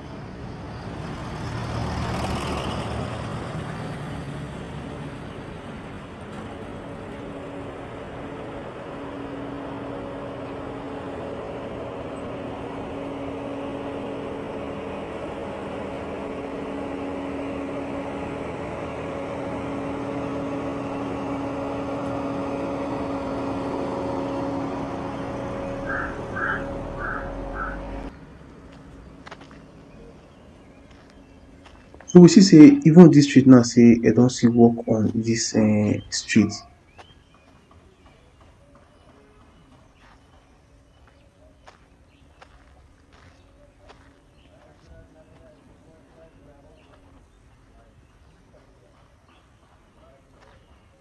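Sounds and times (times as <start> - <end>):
vehicle passing close by: 0.0 - 36.6
steady engine hum: 0.0 - 51.0.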